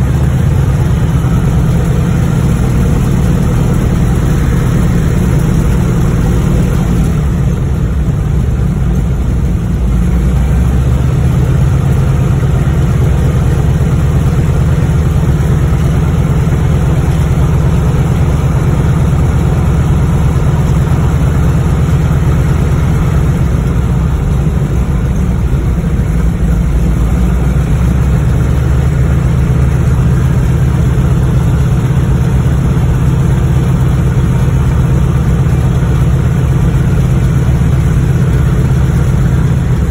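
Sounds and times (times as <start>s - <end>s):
propeller plane engine running: 0.0s - 39.9s.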